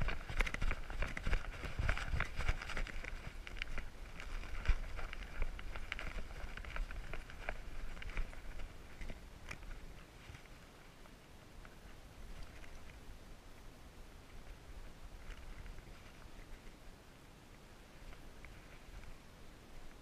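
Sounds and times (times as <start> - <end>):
leaves rustling against camera: 0.0 - 20.0.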